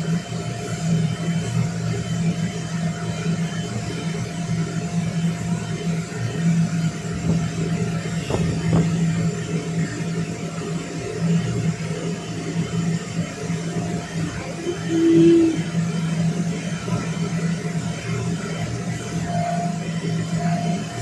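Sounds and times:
electric blower humming: 0:13.3 - 0:17.2.

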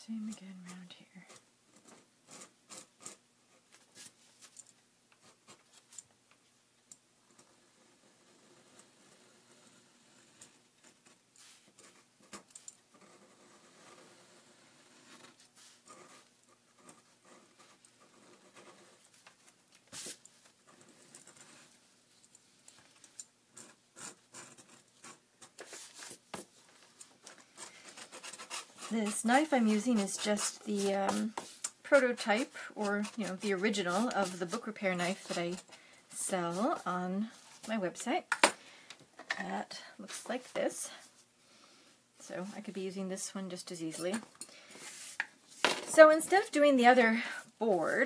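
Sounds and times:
knife scratching paper: 0:27.7 - 0:35.7.

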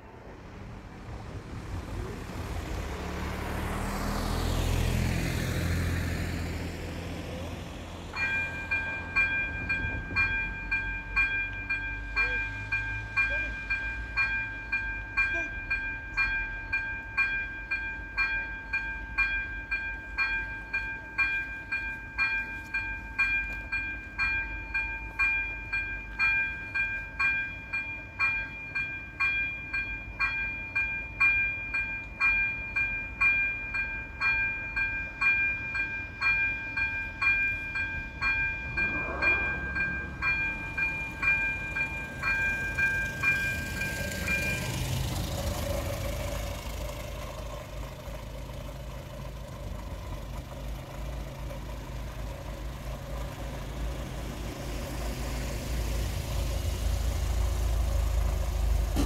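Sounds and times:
car passing: 0:00.0 - 0:14.4, 0:37.1 - 0:59.0
level crossing warning bell: 0:06.6 - 0:59.0.

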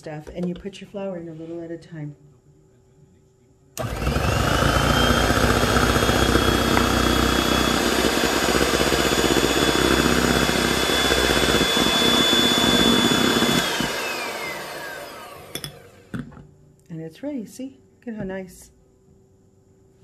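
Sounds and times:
beaters whisking batter: 0:03.8 - 0:15.7
electric hand mixer whining: 0:03.8 - 0:16.2.

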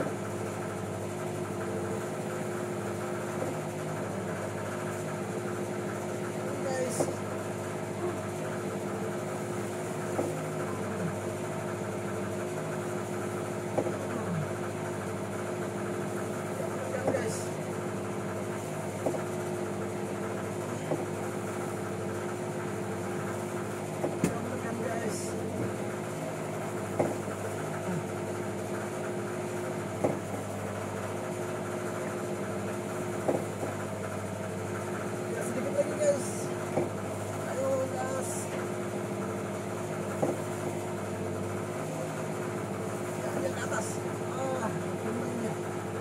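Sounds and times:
boat engine humming: 0:00.0 - 0:46.0
short knocks: 0:19.0 - 0:19.3, 0:26.9 - 0:27.4, 0:40.1 - 0:40.6
short sharp knocks: 0:27.0 - 0:27.3, 0:40.2 - 0:40.4.

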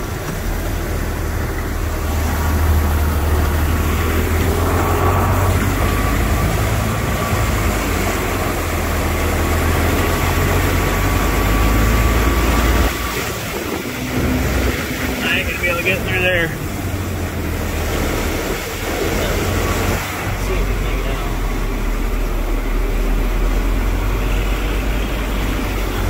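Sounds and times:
tractor engine droning: 0:00.0 - 0:26.0
water rushing: 0:00.0 - 0:26.0
thin steady whine: 0:00.8 - 0:26.0.

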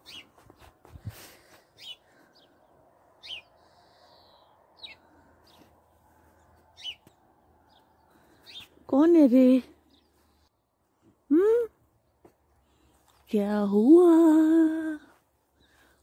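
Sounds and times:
small bird chirping: 0:00.0 - 0:00.8, 0:03.2 - 0:08.8.

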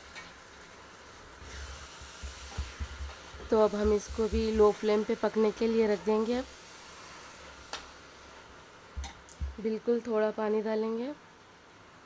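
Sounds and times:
faint steady hiss: 0:00.0 - 0:12.0
wooden spatula knocking on pot: 0:02.2 - 0:03.2, 0:03.8 - 0:04.7.

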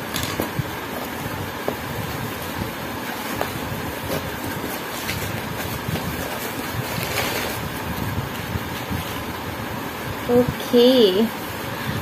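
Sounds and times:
packing paper crinkling: 0:02.1 - 0:09.3.

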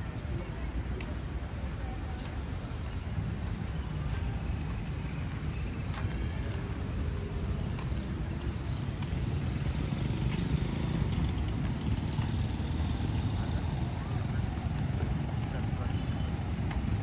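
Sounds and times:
traffic engines rumbling: 0:00.0 - 0:17.0.

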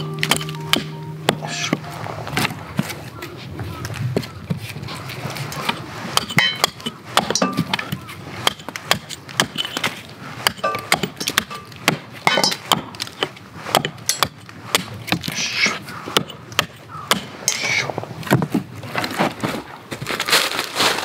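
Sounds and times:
hatchet chopping wood: 0:00.0 - 0:01.8, 0:05.6 - 0:17.6.

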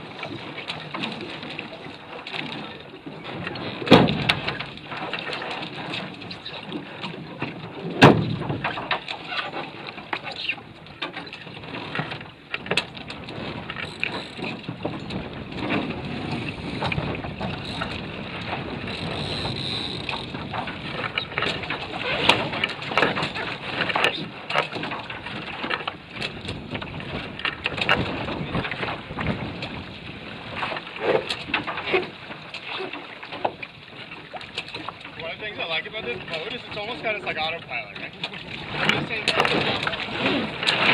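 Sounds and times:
water splashing against hull: 0:00.0 - 0:40.9
knocks on hull: 0:03.5 - 0:06.0, 0:07.9 - 0:09.1, 0:38.0 - 0:40.9
wind buffeting microphone: 0:10.6 - 0:32.5, 0:33.6 - 0:40.9.

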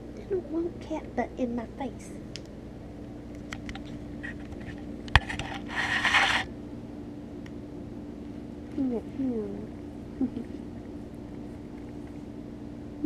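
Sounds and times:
low hum: 0:00.0 - 0:13.0
scraping rustle: 0:03.7 - 0:06.5.

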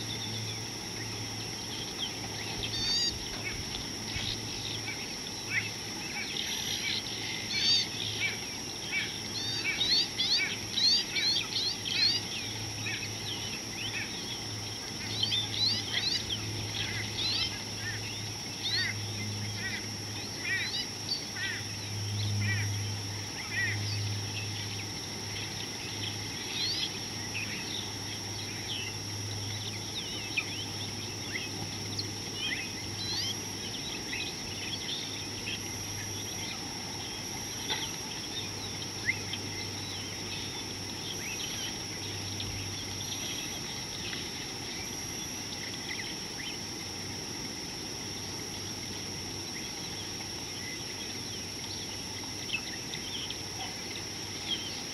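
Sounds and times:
high-pitched insect drone: 0:00.0 - 0:54.9.

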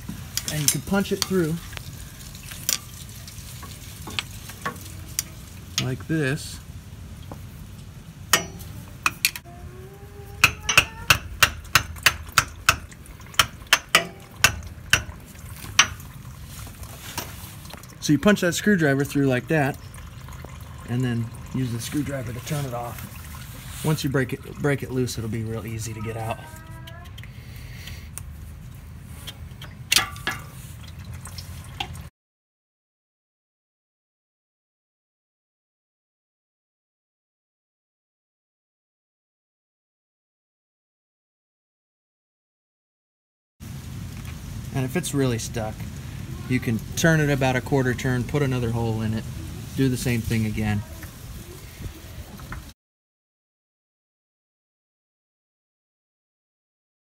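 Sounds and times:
oil trickling and dripping: 0:00.0 - 0:32.1, 0:43.6 - 0:52.8
hammer striking metal: 0:08.3 - 0:09.4, 0:10.4 - 0:15.2.

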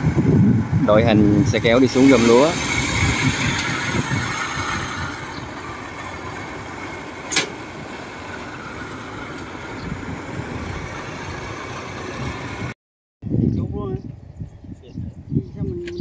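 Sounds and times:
cart engine running: 0:00.0 - 0:12.8
sharp click: 0:07.3 - 0:07.6.

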